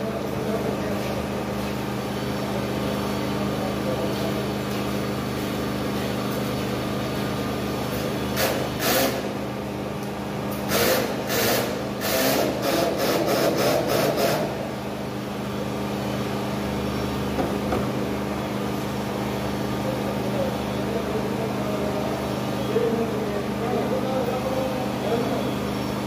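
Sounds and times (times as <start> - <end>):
power drill bursts: 8.4 - 9.3, 10.7 - 14.4.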